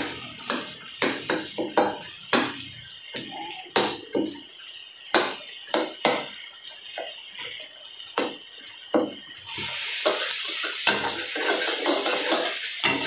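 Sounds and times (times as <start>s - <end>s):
loud steady hiss: 0.0s - 6.4s, 7.4s - 13.0s
utensil scraping frying pan: 9.5s - 13.0s.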